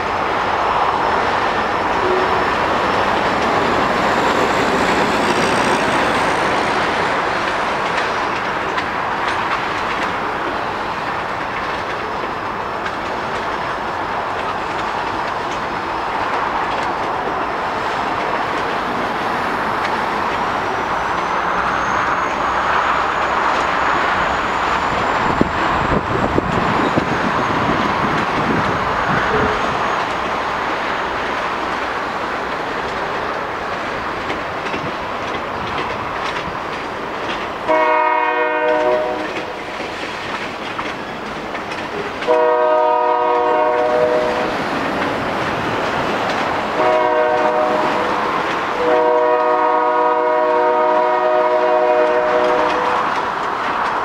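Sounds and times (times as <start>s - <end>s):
train wheels clicking over rail joints: 0.0s - 54.0s
locomotive horn blasts: 1.9s - 2.6s, 37.7s - 39.6s, 42.3s - 44.5s, 46.8s - 48.1s, 48.8s - 53.0s.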